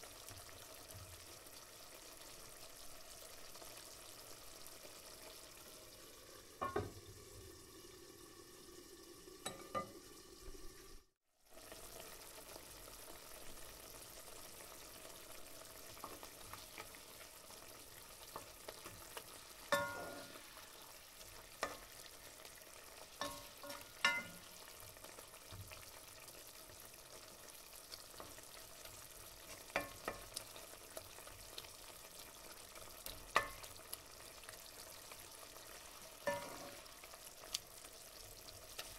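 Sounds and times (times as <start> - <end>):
sauce sizzling in a pan: 0.0 - 38.9
spatula stirring in a pan: 14.4 - 38.9.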